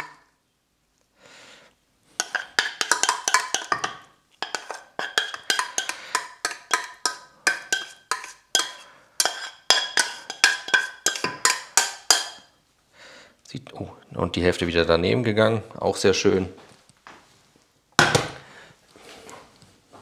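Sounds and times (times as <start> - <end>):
spoon clinking against cookware: 0.0 - 0.2, 2.2 - 12.5.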